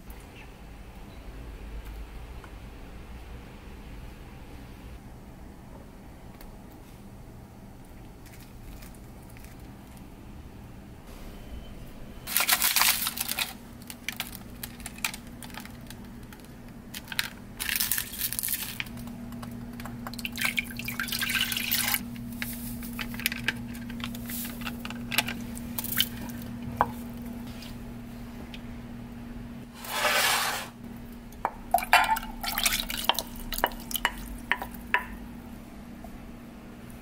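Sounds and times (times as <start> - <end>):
rustling and crinkling: 7.9 - 10.1, 22.1 - 27.8
steady low hum: 18.7 - 29.9, 30.7 - 37.0
small wet liquid sounds: 19.8 - 22.0, 32.2 - 34.5.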